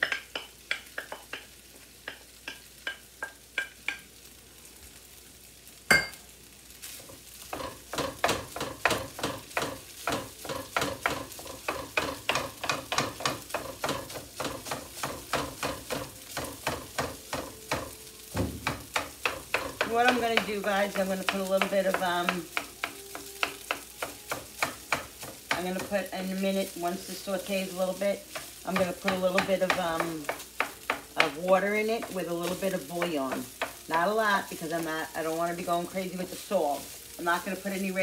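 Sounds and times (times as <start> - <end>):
faint sizzle of frying rice: 0.0 - 38.0
wooden spatula scraping rice in pan: 6.8 - 17.8, 32.0 - 38.0.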